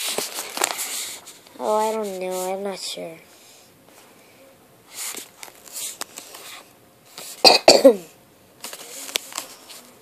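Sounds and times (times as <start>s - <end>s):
person coughing: 7.4s - 8.1s.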